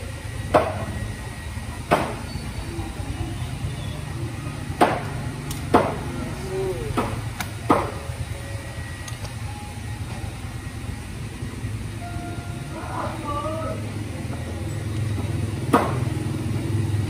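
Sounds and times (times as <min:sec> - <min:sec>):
steady low hum: 0:00.0 - 0:17.0
sharp metallic knocks: 0:01.9 - 0:02.3, 0:04.8 - 0:06.2, 0:15.2 - 0:16.1.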